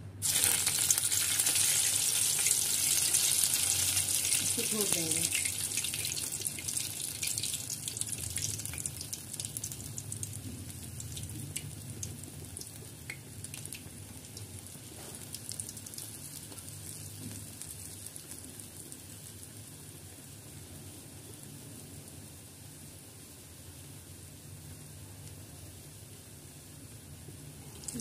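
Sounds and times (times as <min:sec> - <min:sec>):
fritters deep-frying in oil: 0:00.2 - 0:28.0
crackles and pops: 0:03.6 - 0:19.7, 0:24.7 - 0:25.5.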